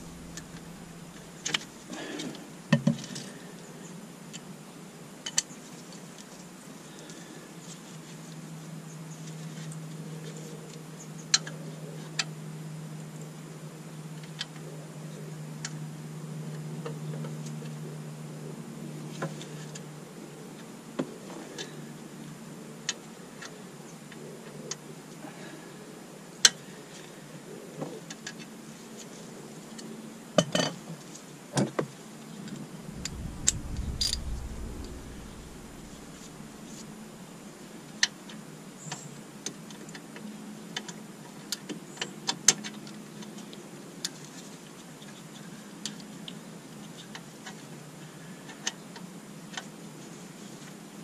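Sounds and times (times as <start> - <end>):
low rumble: 0.0 - 1.9, 32.7 - 37.9.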